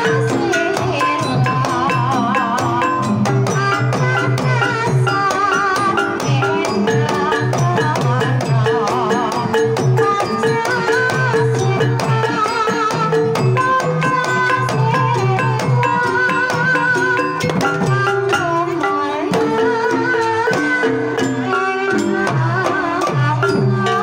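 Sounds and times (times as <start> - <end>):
woman singing wavering melody: 0.0 - 24.0.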